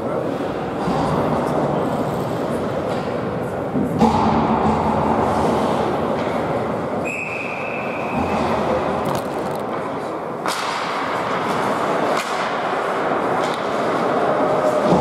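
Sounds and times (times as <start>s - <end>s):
arena crowd noise: 0.0s - 15.0s
hockey sticks and puck cracking: 8.0s - 15.0s.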